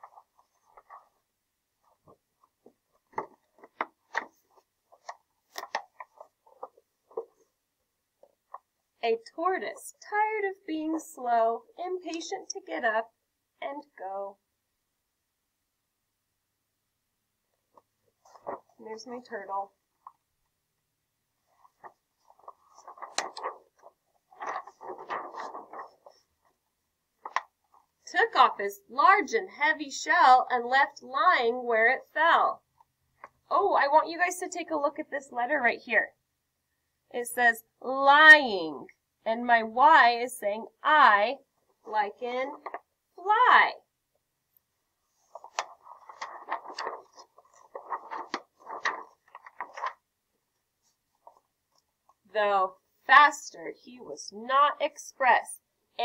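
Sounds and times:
paper rustling and scraping: 0.0s - 7.5s, 18.1s - 18.8s, 21.4s - 26.6s, 27.2s - 27.8s, 45.1s - 50.0s, 50.8s - 51.5s.

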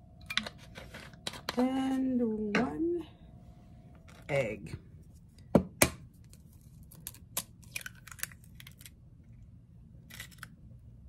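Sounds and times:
eggshell crackling apart: 6.2s - 9.0s, 10.0s - 10.6s.

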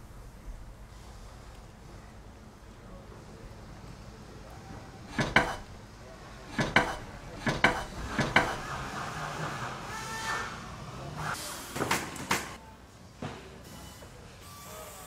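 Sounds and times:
wooden clacks and knocks: 5.1s - 5.7s, 6.5s - 8.6s.

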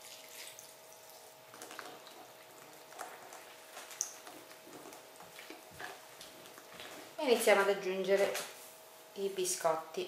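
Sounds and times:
wet squelching stirring: 0.0s - 7.2s.

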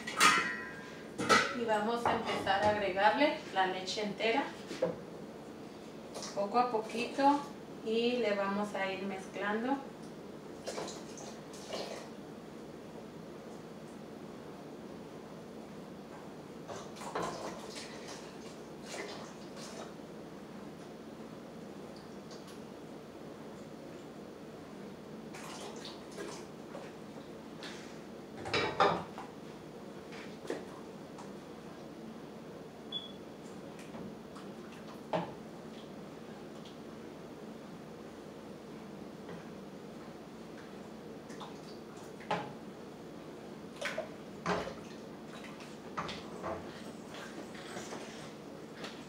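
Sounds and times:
wooden spoon stirring in a pot: 45.5s - 49.0s.

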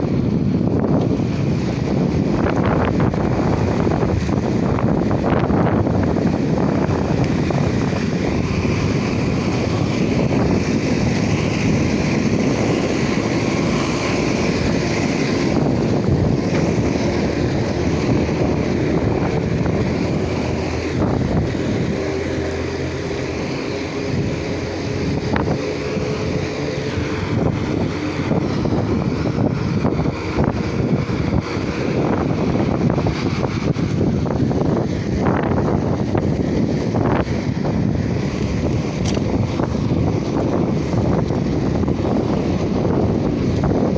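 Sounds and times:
road noise: 0.0s - 43.9s
wind buffeting microphone: 0.0s - 43.9s.

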